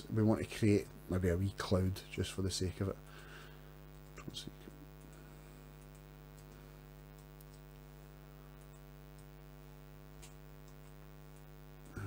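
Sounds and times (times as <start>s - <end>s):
faint electrical hum: 0.0s - 12.0s
computer mouse clicks: 5.8s - 7.9s, 8.6s - 9.4s, 10.1s - 12.0s.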